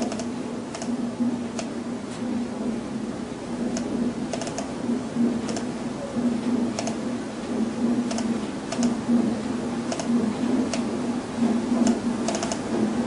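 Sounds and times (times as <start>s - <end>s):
computer mouse clicking: 0.0s - 1.7s, 3.7s - 4.7s, 5.4s - 5.7s, 6.8s - 7.1s, 8.0s - 9.0s, 9.9s - 10.9s, 11.8s - 12.7s
steady low hum: 0.0s - 13.0s.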